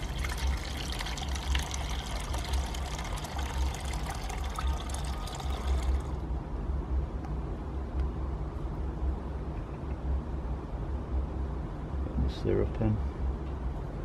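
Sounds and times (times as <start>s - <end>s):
water pouring through a funnel: 0.0s - 6.3s.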